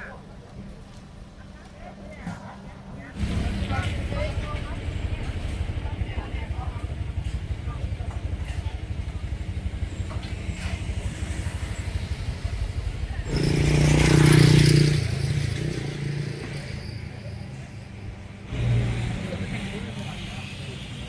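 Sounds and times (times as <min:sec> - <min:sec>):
low pulsing engine: 0:00.0 - 0:21.0
motor vehicle passing: 0:09.1 - 0:17.2.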